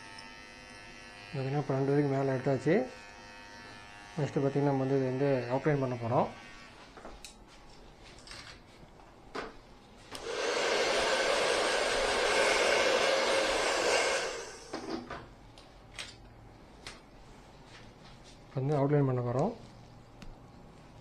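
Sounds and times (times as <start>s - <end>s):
hair dryer blowing: 10.1s - 15.1s.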